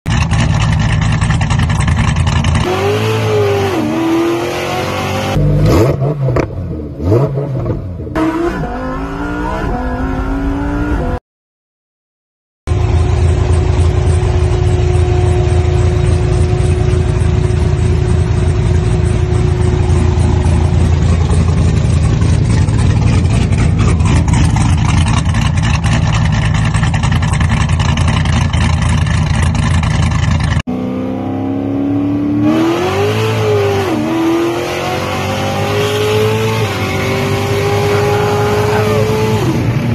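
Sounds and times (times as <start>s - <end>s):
car engine revving: 0.1s - 11.2s, 12.7s - 39.9s.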